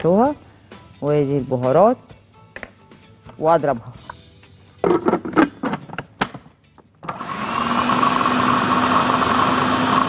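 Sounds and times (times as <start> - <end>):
food processor motor running: 7.1 - 10.0.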